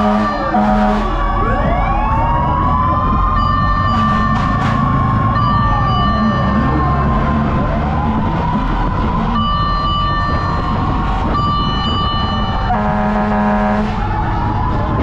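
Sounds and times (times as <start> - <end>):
low buzzy horn blast: 0.0 - 1.2, 3.9 - 4.8, 12.7 - 14.0
long steady horn tones: 0.0 - 1.6, 3.8 - 5.0, 12.4 - 14.2
engines running: 0.0 - 15.0
fire truck sirens wailing: 0.0 - 15.0.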